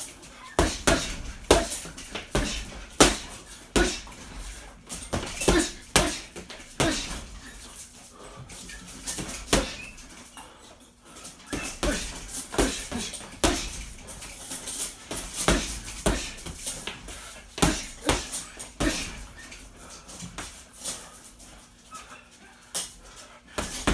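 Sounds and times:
punches thudding on heavy bag: 0.6 - 7.6, 9.0 - 10.0, 11.5 - 19.3, 23.6 - 23.9.

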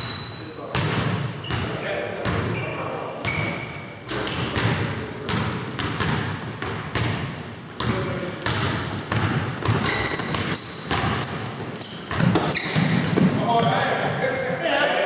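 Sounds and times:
sneakers squeaking: 0.0 - 14.9
basketball bouncing on hardwood: 4.5 - 11.4, 12.1 - 13.7.

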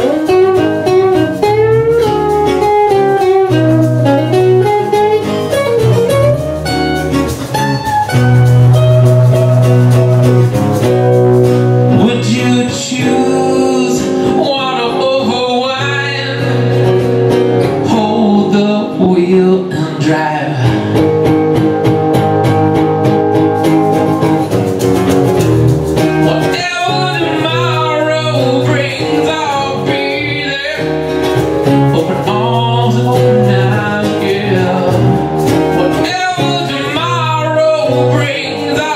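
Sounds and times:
acoustic guitars strummed: 0.0 - 38.9
man singing: 11.9 - 17.0, 17.7 - 21.0, 26.1 - 38.9.

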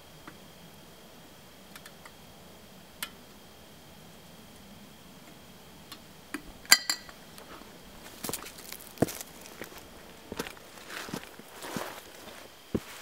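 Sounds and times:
metal pot clink with ring: 6.7 - 7.1.

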